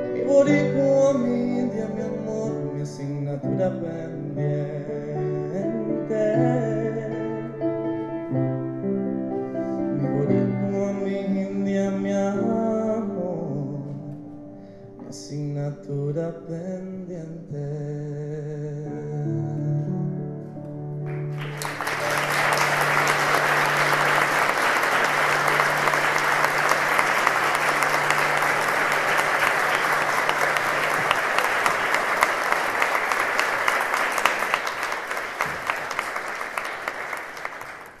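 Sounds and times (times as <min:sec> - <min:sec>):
audience applause: 0:21.1 - 0:38.0.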